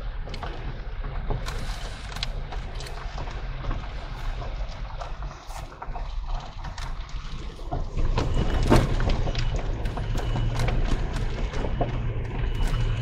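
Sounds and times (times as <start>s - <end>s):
engine and tyres rumbling: 0.0s - 13.0s.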